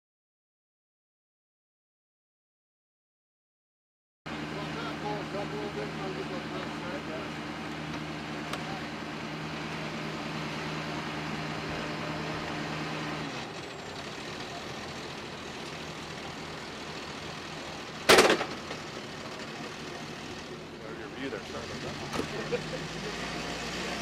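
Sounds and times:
truck engine droning: 4.3 - 24.0
loud burst of noise: 18.0 - 20.5.

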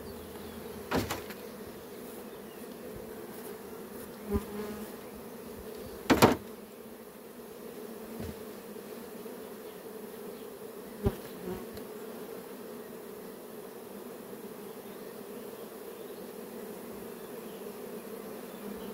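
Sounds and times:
honeybees humming: 0.0 - 18.9
knocks on hive: 0.9 - 1.5, 6.0 - 6.5, 8.2 - 8.4.

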